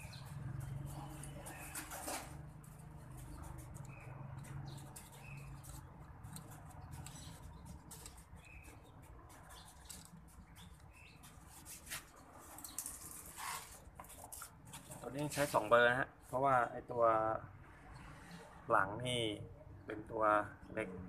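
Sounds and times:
bird chirping: 0.0 - 1.9, 2.9 - 13.1.

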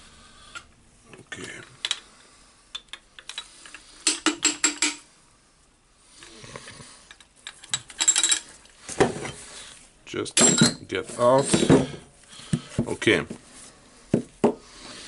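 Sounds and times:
metal parts clicking and clinking: 2.7 - 5.0, 7.1 - 8.6.

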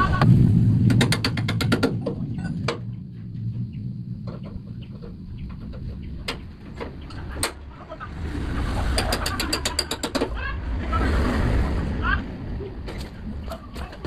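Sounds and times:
low vehicle rumble: 0.0 - 14.0
birds chirping: 2.1 - 11.0.

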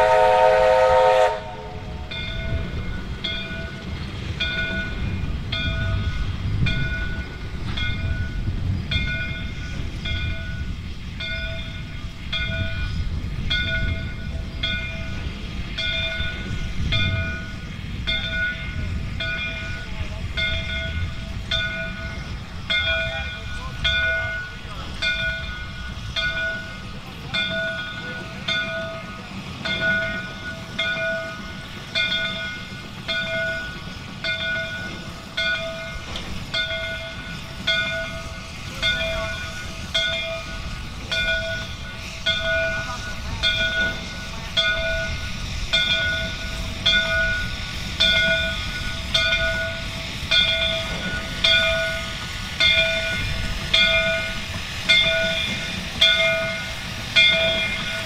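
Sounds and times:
railway bell ringing: 0.0 - 58.0
train rumbling: 0.0 - 58.0.

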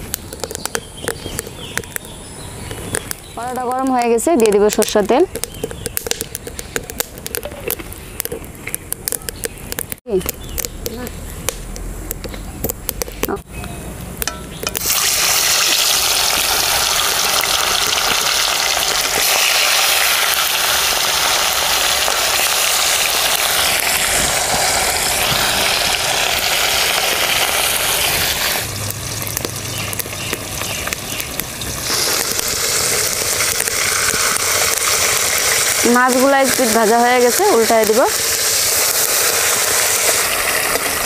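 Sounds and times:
fish sizzling in hot oil: 14.2 - 41.0.

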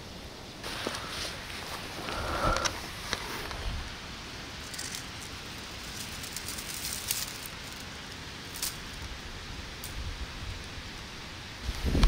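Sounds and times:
dry stalks and leaves rustling: 0.4 - 12.0
wind rumbling on microphone: 0.9 - 4.2, 9.0 - 12.0.

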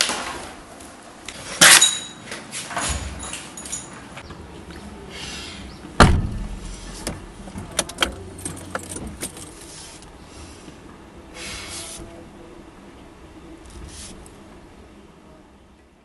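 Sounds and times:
keys jangling and clicking: 1.7 - 4.2, 7.7 - 9.7
car door slamming: 6.0 - 9.5.

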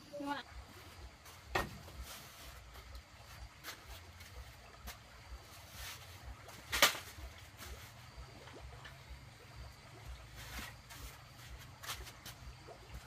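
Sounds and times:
broom sweeping dirt floor: 0.7 - 8.2, 10.2 - 13.0.

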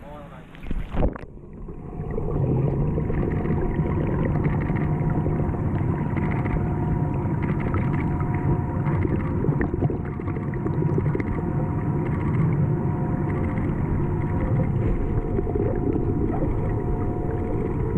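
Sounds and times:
faint constant hum: 0.0 - 17.9
deep underwater rumble: 0.4 - 17.9
small clicks and crackles: 4.3 - 5.0, 5.7 - 6.6, 7.4 - 9.4, 12.0 - 12.6, 13.2 - 15.0.

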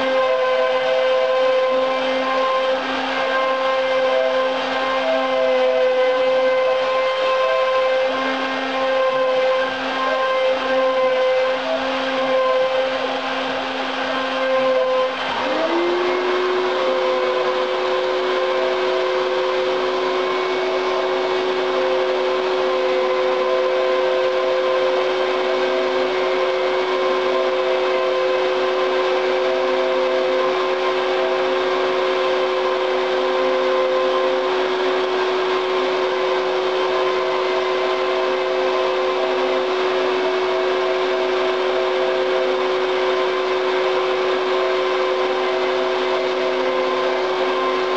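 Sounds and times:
motor whine: 0.0 - 47.9
router bit cutting chipboard: 0.0 - 47.9
spindle motor spinning: 0.0 - 47.9.

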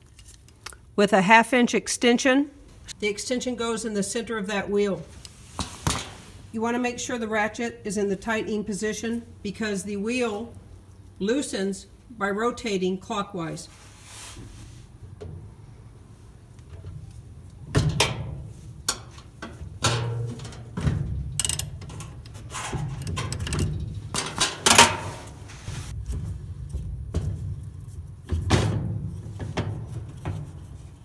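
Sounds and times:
wrench clanking on sheet metal: 17.7 - 25.4.

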